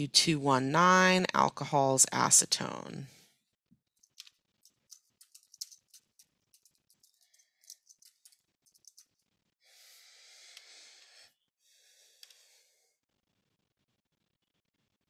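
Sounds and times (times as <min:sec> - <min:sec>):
computer keyboard typing: 0:04.0 - 0:09.1
breath into microphone: 0:09.6 - 0:12.8.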